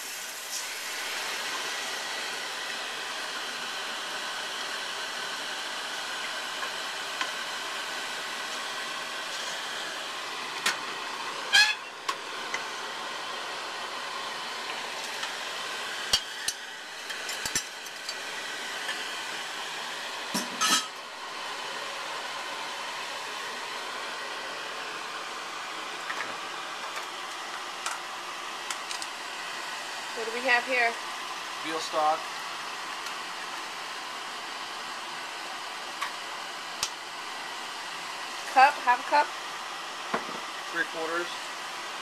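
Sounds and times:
steady whirring hiss: 0.0 - 42.0.

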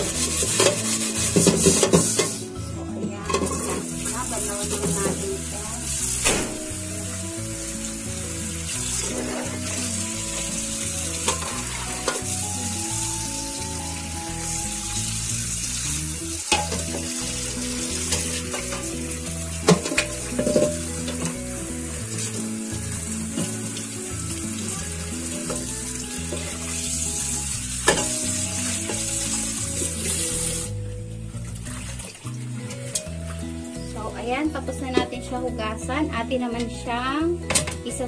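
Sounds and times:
steel wool scrubbing metal: 0.0 - 2.4
tap water running onto wok: 0.0 - 2.5, 3.3 - 33.5
background music: 0.0 - 38.0.

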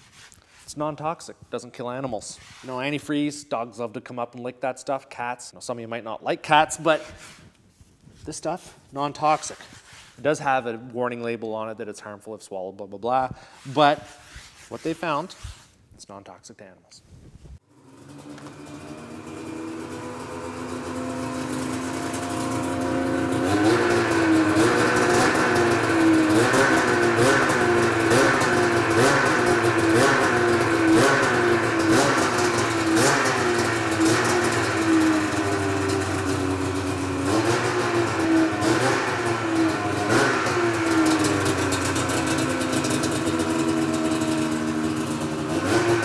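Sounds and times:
snowmobile engine revving: 17.8 - 46.0.

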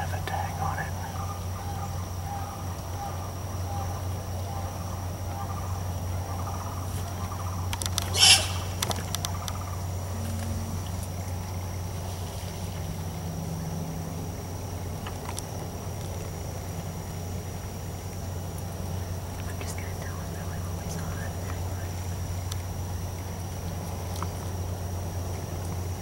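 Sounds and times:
high insect drone: 0.0 - 26.0
low steady hum: 0.0 - 26.0
faint clicks: 7.0 - 11.1, 19.3 - 24.5.

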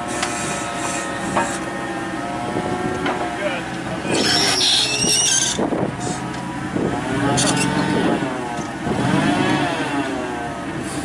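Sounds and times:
forklift engine running: 0.0 - 11.0
high squealing scrape: 0.1 - 1.7, 4.0 - 6.3, 7.4 - 7.9.

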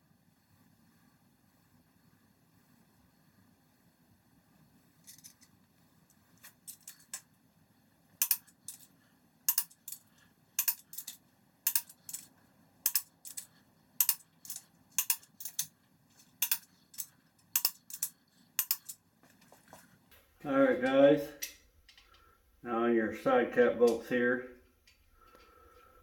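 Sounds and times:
torque wrench clicking: 8.2 - 8.9, 9.5 - 15.7, 16.4 - 19.0.

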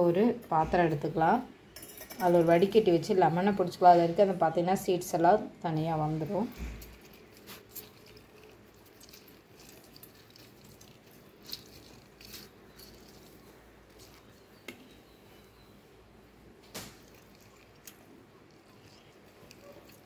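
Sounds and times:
wet hand squeezing lemons: 6.6 - 15.5, 16.8 - 20.0.

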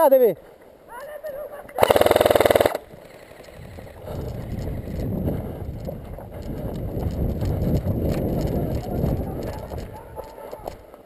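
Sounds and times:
airsoft rifle full-auto burst: 1.8 - 2.9
wind rumble on camera: 2.9 - 10.9
footsteps on dirt and gravel: 3.4 - 11.0.

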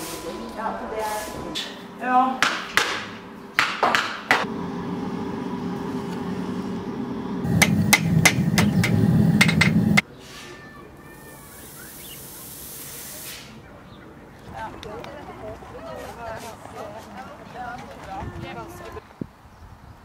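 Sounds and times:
steady low hum: 4.2 - 10.0
hammer striking horseshoe on anvil: 7.5 - 10.0.

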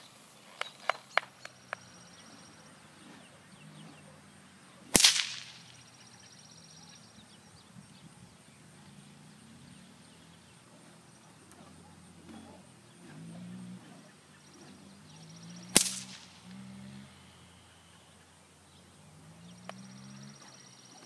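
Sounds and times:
whip cracking: 4.9 - 6.0, 15.7 - 16.7
sharp clicks: 5.0 - 5.9, 15.7 - 16.6.

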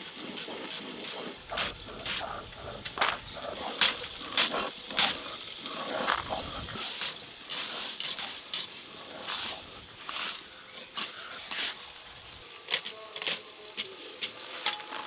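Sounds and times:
stone scraping on stone: 0.0 - 11.8.

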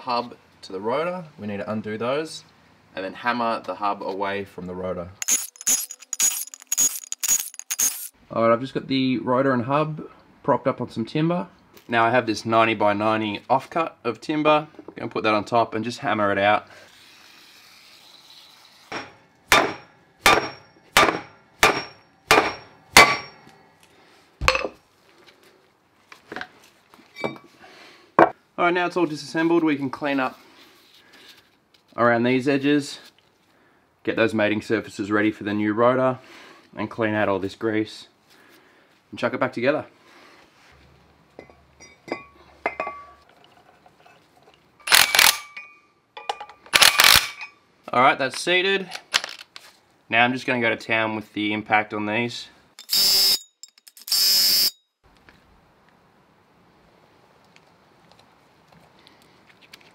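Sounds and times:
hammer striking wood block: 18.9 - 23.4.

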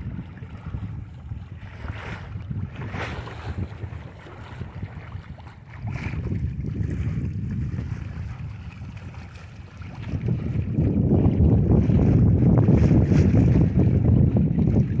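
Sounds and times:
water splashing against boat: 0.0 - 15.0
wind buffeting microphone: 0.0 - 15.0.

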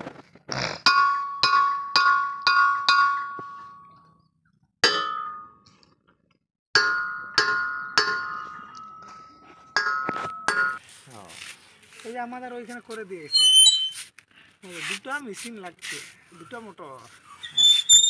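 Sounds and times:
hammer ringing on iron pump: 0.9 - 3.8, 6.8 - 10.8.

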